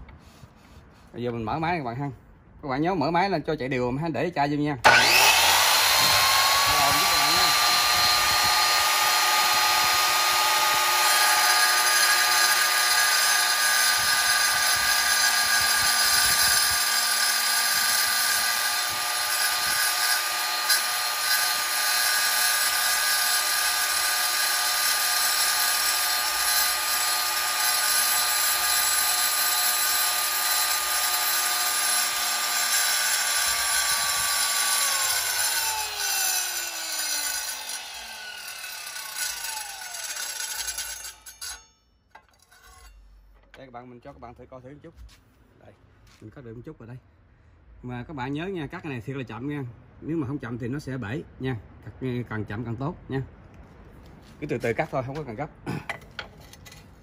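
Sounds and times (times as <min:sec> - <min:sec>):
wet tile saw blade whining: 0:04.8 - 0:43.1
blade grinding glass: 0:37.0 - 0:43.2.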